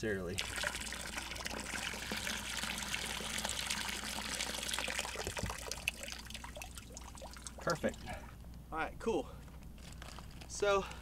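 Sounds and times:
water pouring from a bucket: 0.4s - 8.0s.

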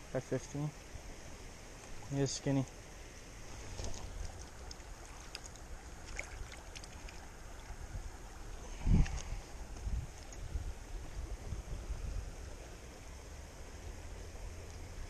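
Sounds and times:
creek running over stones: 1.0s - 11.5s.

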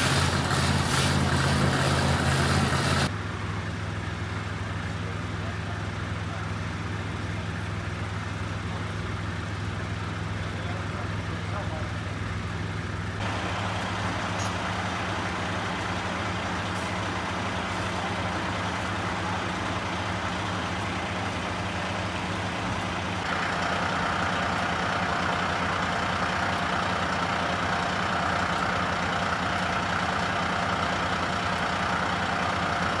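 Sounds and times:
water pouring from hose: 0.0s - 3.1s
fire engine pump running: 0.0s - 33.0s.

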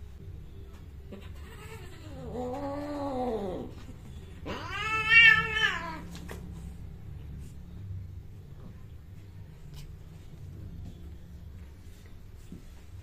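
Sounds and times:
cats yowling: 1.1s - 6.2s.

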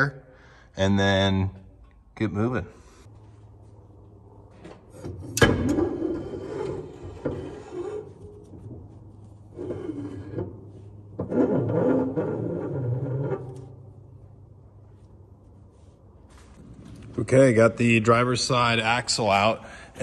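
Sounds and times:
metal scraping with squeal: 5.8s - 8.5s, 9.5s - 13.7s.

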